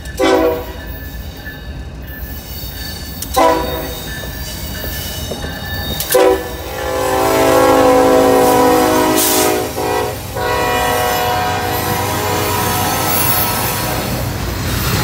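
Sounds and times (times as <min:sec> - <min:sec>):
train on rails: 0:00.0 - 0:15.0
train horn blasts: 0:00.2 - 0:00.8, 0:03.4 - 0:03.9, 0:06.1 - 0:14.1.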